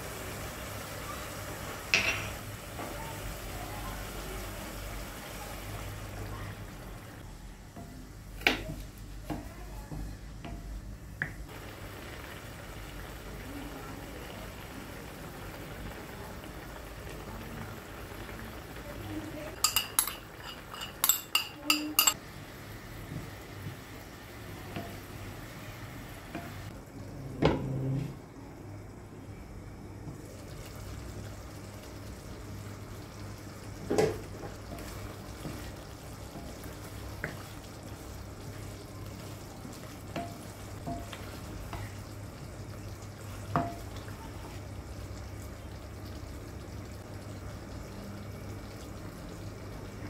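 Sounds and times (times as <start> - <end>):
metal utensil clinking on wok: 19.6 - 22.2.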